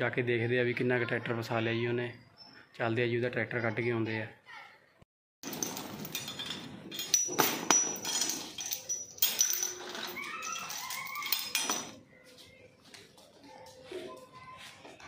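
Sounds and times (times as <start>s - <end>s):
heavy chain clanking: 5.4s - 12.0s.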